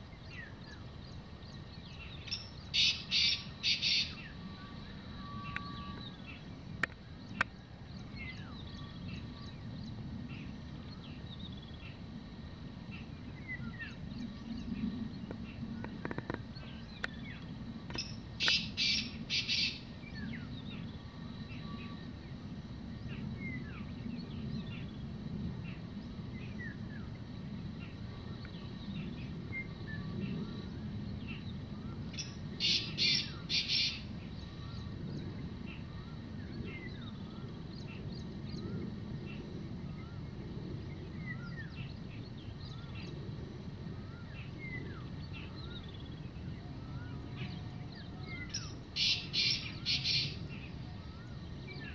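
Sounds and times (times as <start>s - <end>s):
small birds chirping: 0.0s - 12.2s, 12.9s - 22.2s, 25.7s - 51.9s
low steady rumble: 0.0s - 51.9s
bird calling rapid notes: 2.8s - 4.2s.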